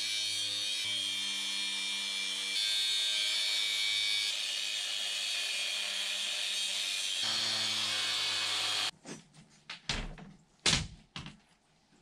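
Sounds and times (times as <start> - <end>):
power tool running: 0.8 - 8.9.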